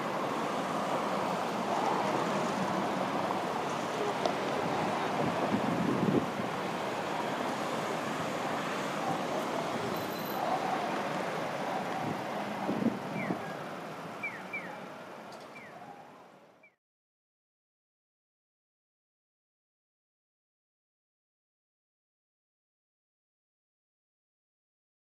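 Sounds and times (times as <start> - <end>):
city street traffic: 0.0 - 16.8
wind on microphone: 4.5 - 6.6, 11.9 - 13.5.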